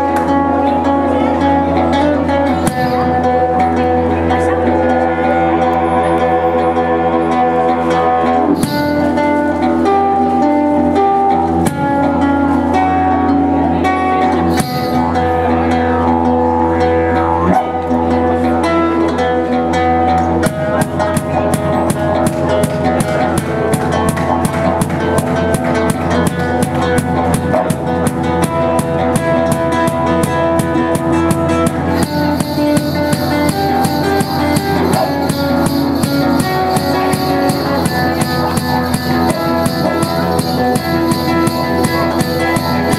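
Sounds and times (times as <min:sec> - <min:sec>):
didgeridoo drone: 0:00.0 - 0:42.9
strummed guitar: 0:00.0 - 0:42.9
fast percussion beat: 0:02.6 - 0:03.4, 0:08.6 - 0:09.2, 0:14.5 - 0:15.2, 0:20.4 - 0:42.9.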